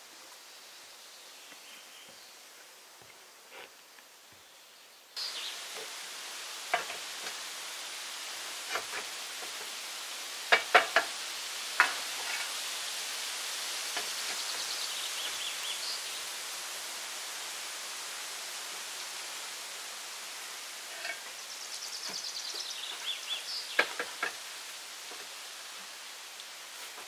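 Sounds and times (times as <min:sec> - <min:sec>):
steady hiss: 0:00.0 - 0:27.0.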